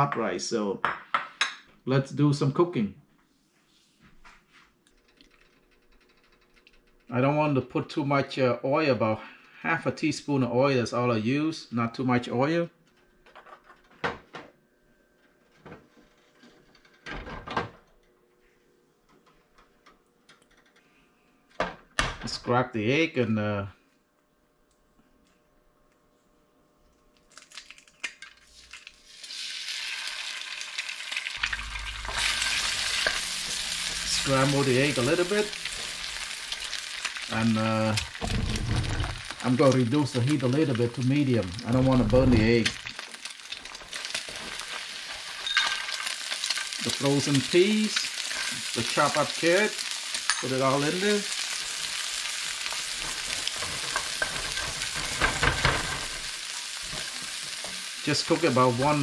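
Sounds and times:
egg sizzling in a pan: 27.3 - 59.0.

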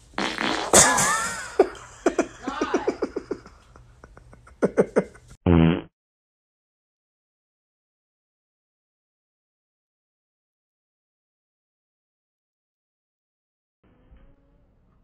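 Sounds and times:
sputtering fart: 0.2 - 1.7, 5.4 - 5.9.

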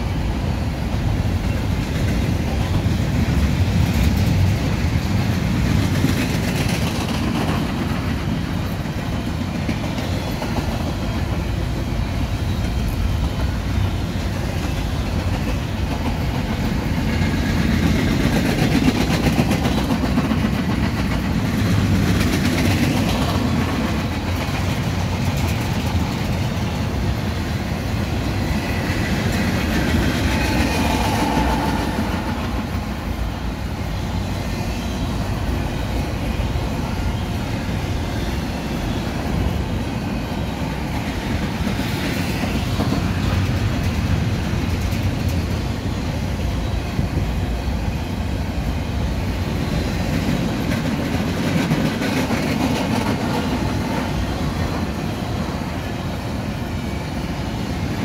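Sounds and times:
train wheels on rails: 0.0 - 58.0.

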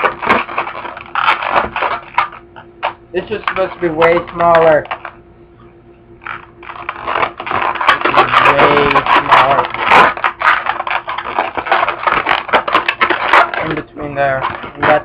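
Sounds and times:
balloon squeaking and creaking: 0.0 - 5.1, 6.2 - 15.0.

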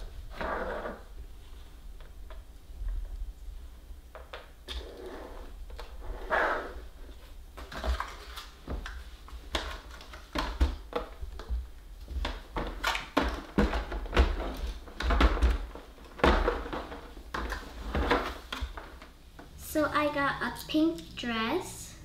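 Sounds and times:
plastic toy packaging rustling: 7.6 - 10.8.

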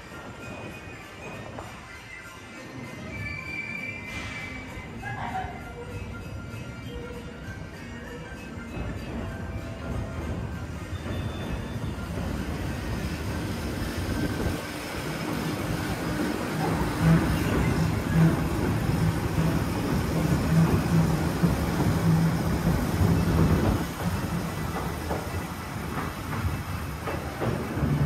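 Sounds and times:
electric train rumbling on track: 0.0 - 28.0
train clunks: 7.9 - 28.0.

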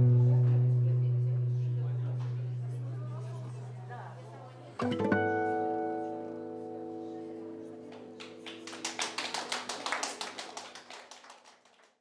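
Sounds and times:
classical guitar chord ringing: 4.8 - 8.6
audience clapping: 7.8 - 12.0.

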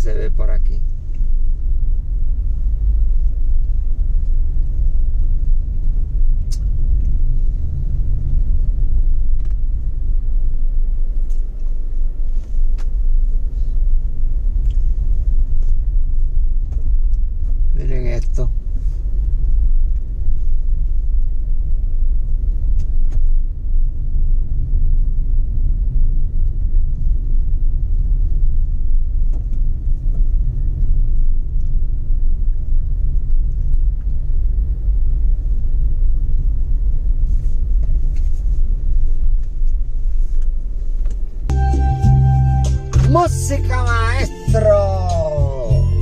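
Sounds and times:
van rumbling from inside cabin: 0.0 - 46.0.

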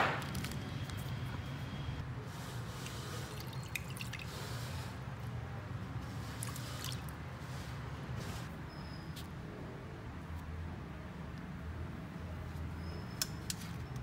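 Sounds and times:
steady low hum: 0.0 - 2.1.

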